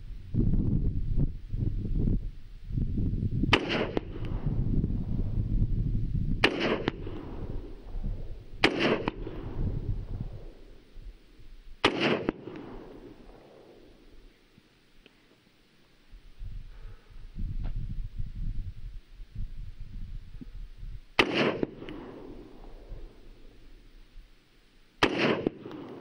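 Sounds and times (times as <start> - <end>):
rifle shots: 3.5 - 4.5, 6.4 - 7.8, 8.6 - 10.6, 11.8 - 13.9, 21.2 - 22.9, 25.0 - 26.0.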